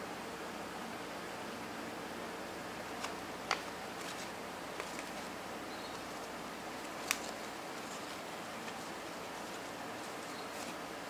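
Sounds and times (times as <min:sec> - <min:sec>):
steady hiss: 0:00.0 - 0:11.0
paper crackling: 0:02.9 - 0:11.0.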